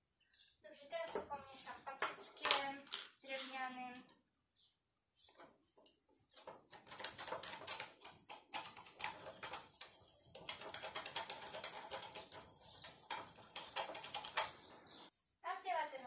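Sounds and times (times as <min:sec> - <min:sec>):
utensil stirring in plastic cup: 0:05.4 - 0:15.0.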